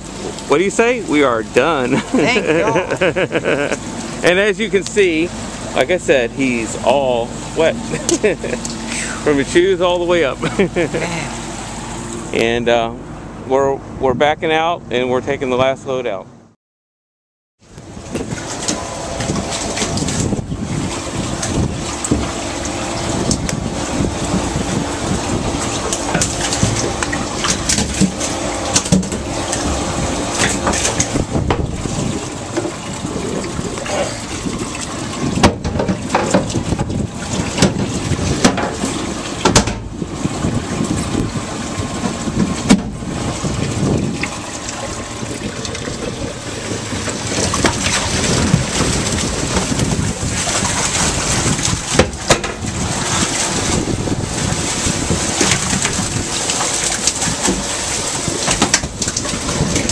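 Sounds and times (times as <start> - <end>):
water running and splashing: 18.0 - 59.9
knocks and bumps of hatch: 35.3 - 40.0.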